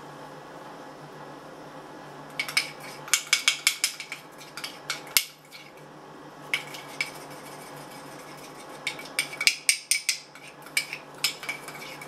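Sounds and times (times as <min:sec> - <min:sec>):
spoon clinking against bowl: 0:02.4 - 0:05.7, 0:08.8 - 0:12.0.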